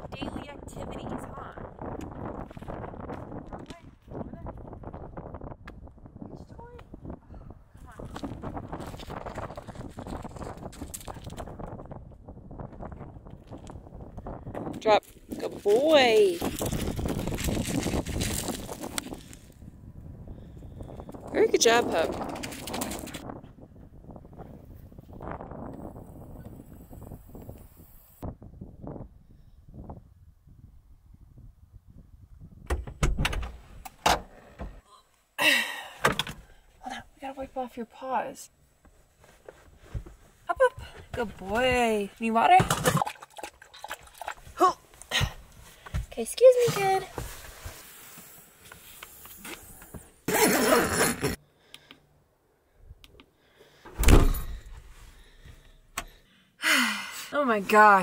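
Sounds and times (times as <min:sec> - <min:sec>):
heavy thump: 0:53.9 - 0:54.9.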